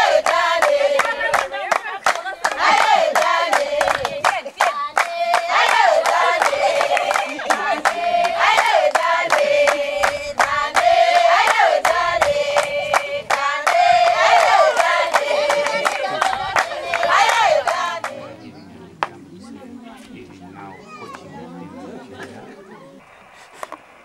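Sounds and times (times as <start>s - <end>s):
rhythmic handclapping: 0.0s - 18.4s
women singing together: 0.0s - 18.5s.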